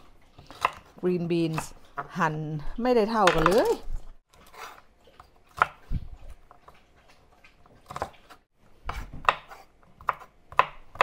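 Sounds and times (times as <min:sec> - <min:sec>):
knife chopping on wooden board: 0:00.4 - 0:00.9, 0:05.5 - 0:05.8, 0:07.8 - 0:11.0.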